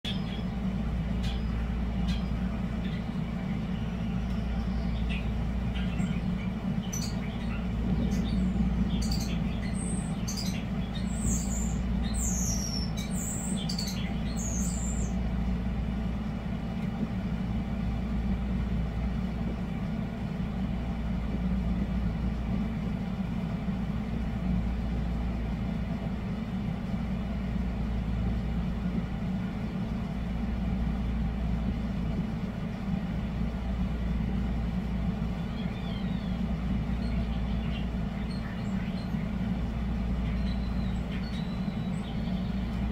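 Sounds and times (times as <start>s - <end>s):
starlings singing: 0.0s - 15.3s, 35.0s - 42.9s
air conditioner humming: 0.0s - 42.9s.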